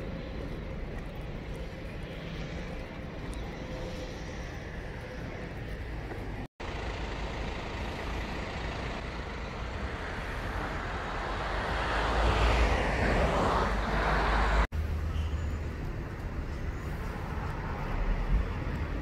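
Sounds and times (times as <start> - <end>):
vehicle approaching: 0.0 - 19.0
passing vehicles hiss: 6.7 - 19.0.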